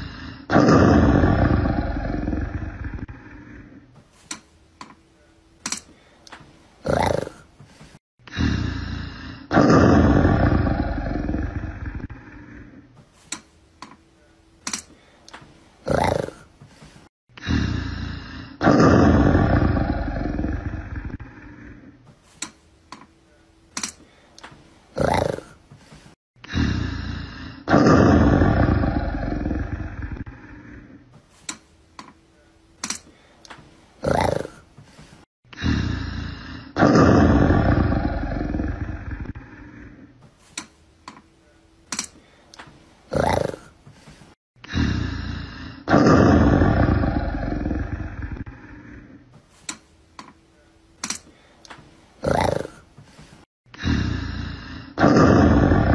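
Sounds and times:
big cat roaring: 0.0 - 3.9, 6.8 - 7.5, 8.3 - 12.9, 15.8 - 16.5, 17.4 - 22.0, 24.9 - 25.6, 26.5 - 31.0, 34.0 - 34.6, 35.6 - 40.1, 43.1 - 43.7, 44.7 - 49.2, 52.2 - 52.8, 53.8 - 55.9.

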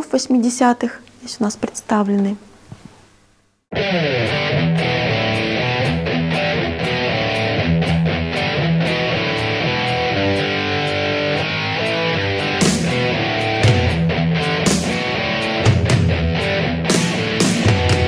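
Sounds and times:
electric guitar: 3.7 - 18.0
steady drum beat: 12.4 - 18.0.

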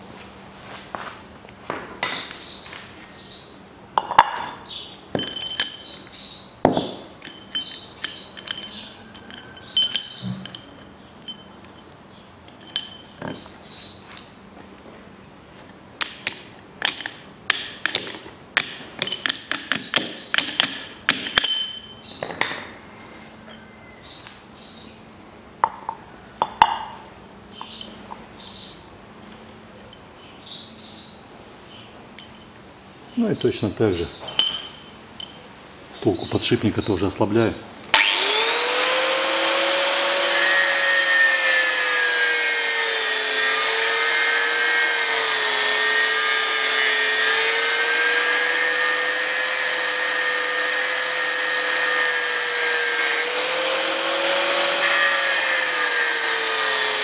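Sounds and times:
birds chirping: 2.0 - 14.4, 21.8 - 25.2, 26.5 - 29.0, 29.7 - 32.4, 33.0 - 37.9
hammer striking metal: 16.0 - 22.7, 34.2 - 35.4.

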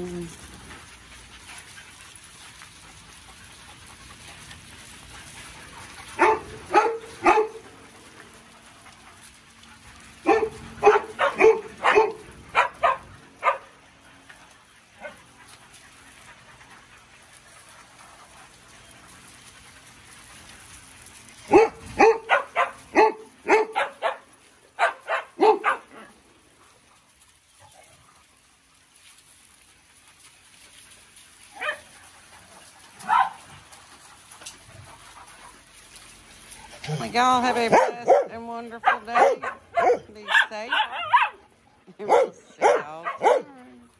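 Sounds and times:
dog barking: 6.2 - 7.6, 10.2 - 13.7, 21.5 - 24.2, 24.8 - 25.9, 33.1 - 33.4, 37.7 - 41.4, 42.1 - 43.6.

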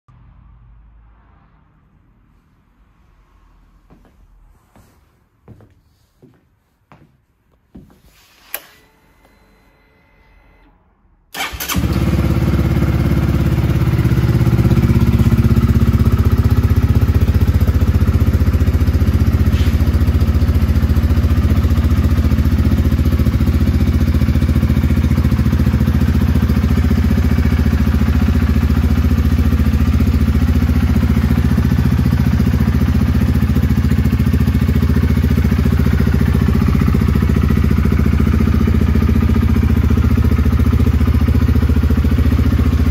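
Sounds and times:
motorcycle engine starting and idling: 8.5 - 42.9.

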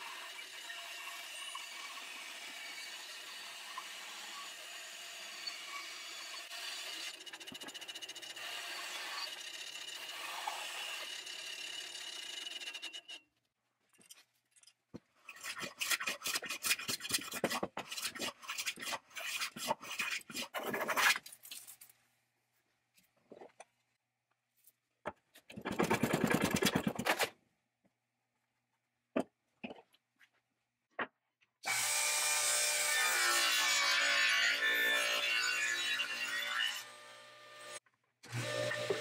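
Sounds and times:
bandsaw cutting wood: 0.0 - 12.9, 31.6 - 39.0.

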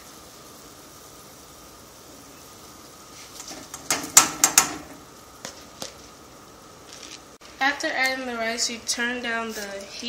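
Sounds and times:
low steady background noise: 0.0 - 10.0
rice clattering and splashing into pot: 3.2 - 6.2.

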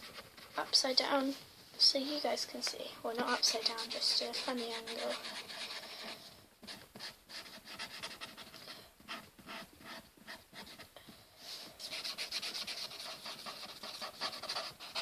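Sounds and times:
pen scratching on paper: 3.3 - 10.9, 11.8 - 15.0.

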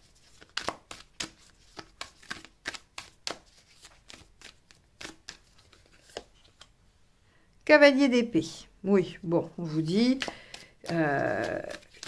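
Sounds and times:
cards being shuffled: 0.0 - 6.7, 9.6 - 12.0.

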